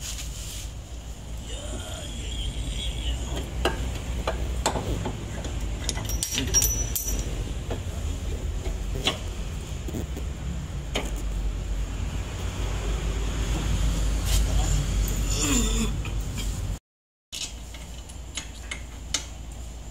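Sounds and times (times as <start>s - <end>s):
metallic clinks and knocks: 3.7s - 7.9s.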